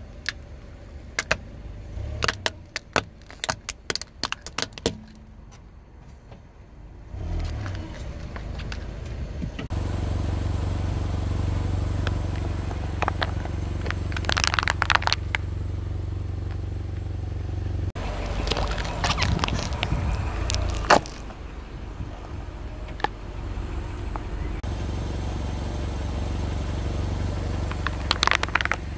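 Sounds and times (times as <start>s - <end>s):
car engine humming: 0.0s - 28.9s
tyre crushing plastic toys: 2.1s - 5.4s, 13.0s - 15.4s, 18.2s - 21.4s, 27.7s - 28.9s.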